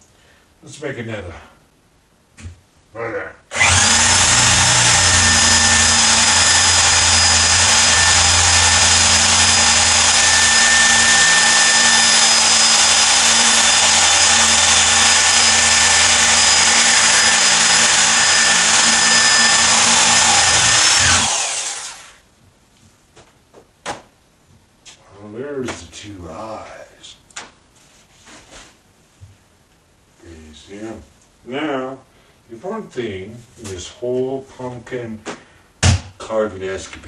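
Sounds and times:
electric drill whining: 3.5 - 22.2.

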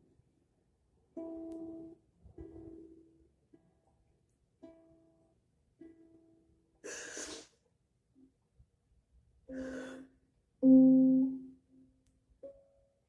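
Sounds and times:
ukulele note ringing: 10.6 - 11.6.

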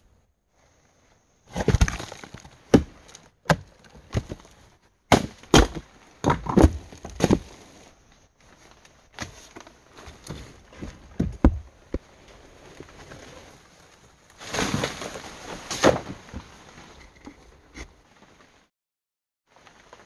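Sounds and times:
twigs and leaves cracking: 1.6 - 5.9.

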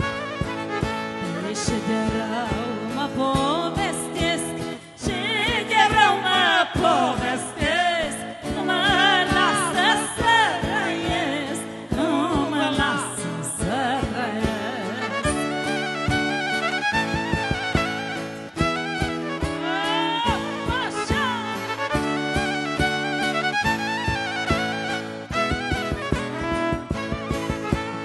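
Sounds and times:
lead melody with heavy vibrato: 0.0 - 3.3, 14.8 - 28.0
steady beat: 16.1 - 28.0.

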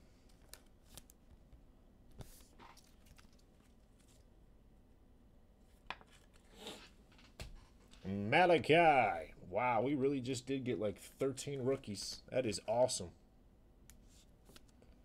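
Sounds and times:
trading cards rustling: 2.2 - 4.3.

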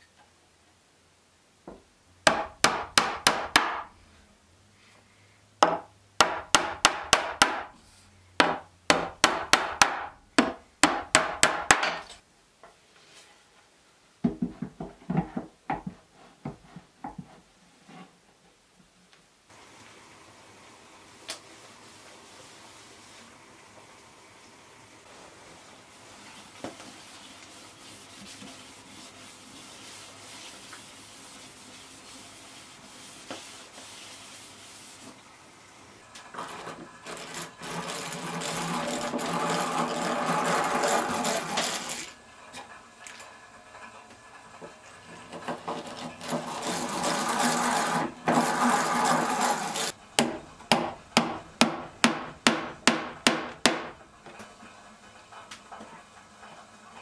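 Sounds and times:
hammer tapping nails: 2.3 - 3.9, 5.6 - 7.8, 8.4 - 12.2, 50.2 - 53.9
rag rubbing on wooden boards: 36.4 - 42.1, 45.6 - 50.0
hand drill boring into wood: 36.4 - 42.2, 45.8 - 50.0.

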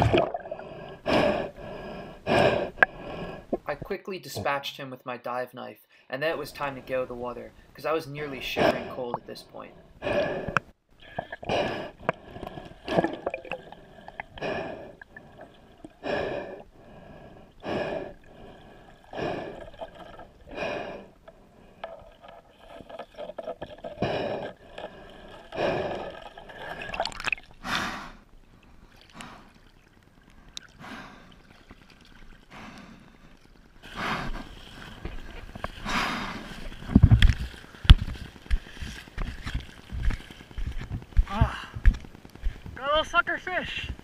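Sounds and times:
water gurgling and dripping: 0.0 - 3.9, 10.1 - 42.8
breathing through a snorkel: 0.4 - 3.7, 7.5 - 29.7, 30.4 - 31.6, 32.4 - 39.3.

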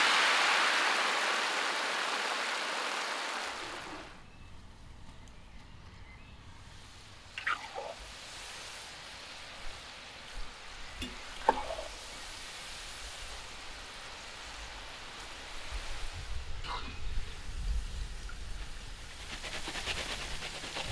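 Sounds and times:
chicken deep-frying in oil: 0.0 - 4.2, 6.8 - 16.2.

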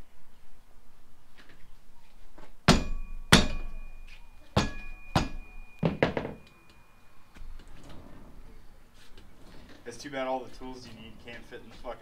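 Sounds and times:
sharp metallic knocks: 2.6 - 6.8
thin ringing tone: 2.9 - 7.4.

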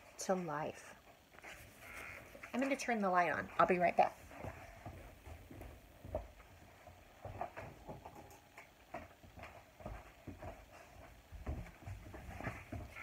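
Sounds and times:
faint footsteps: 1.0 - 2.8, 3.4 - 13.0.

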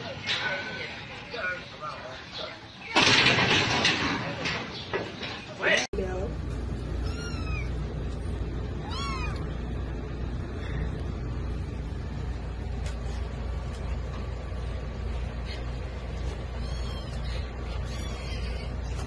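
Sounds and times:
steady low hum: 5.9 - 19.0.

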